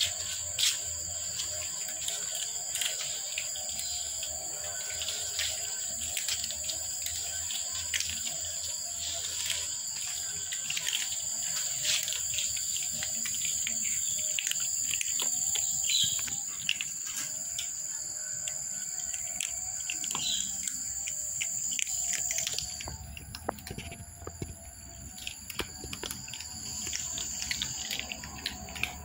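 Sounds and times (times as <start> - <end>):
bird chirps: 0.0 - 29.0
cats crunching dry kibble: 0.0 - 29.0.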